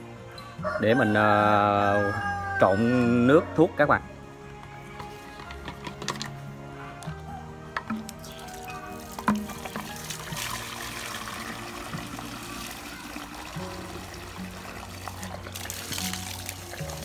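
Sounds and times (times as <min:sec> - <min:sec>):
water from hose filling tank: 0:08.0 - 0:17.0.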